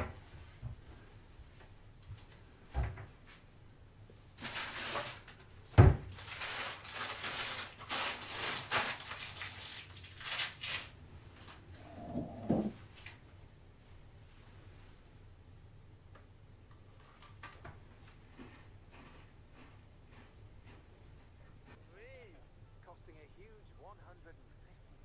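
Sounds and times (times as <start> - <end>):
rustling: 4.4 - 15.3.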